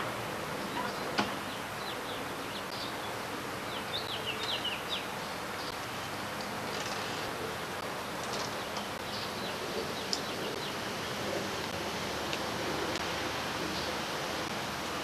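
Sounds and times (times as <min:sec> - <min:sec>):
steady hiss: 0:00.0 - 0:15.0
small birds chirping: 0:00.7 - 0:06.5, 0:08.3 - 0:11.7.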